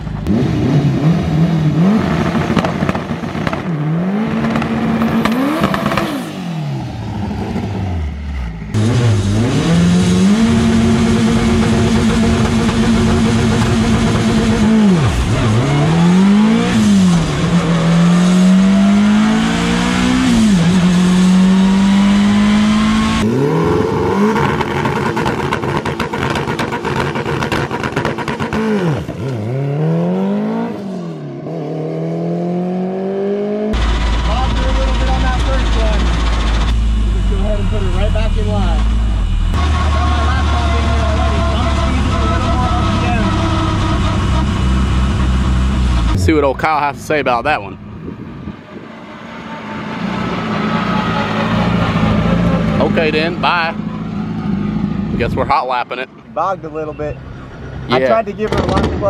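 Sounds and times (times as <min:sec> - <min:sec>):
car engine revving hard: 0:00.2 - 0:46.4.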